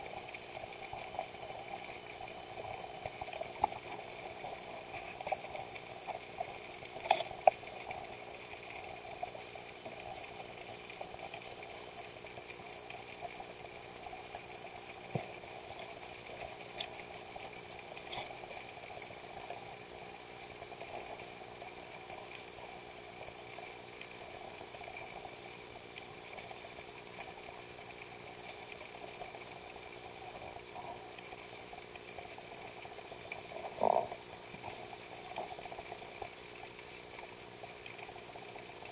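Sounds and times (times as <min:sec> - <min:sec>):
muffled underwater noise: 0:29.0 - 0:36.9.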